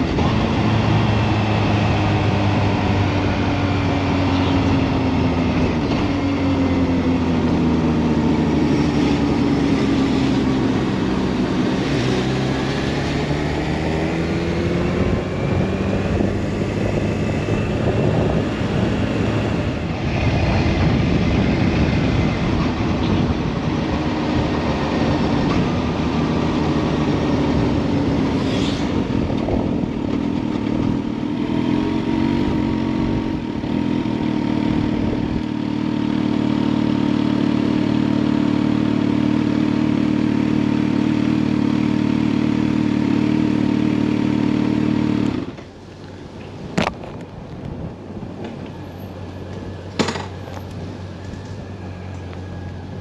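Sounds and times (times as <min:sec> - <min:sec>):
road and wind noise: 0:00.0 - 0:53.0
motorcycle engine running: 0:29.0 - 0:45.7.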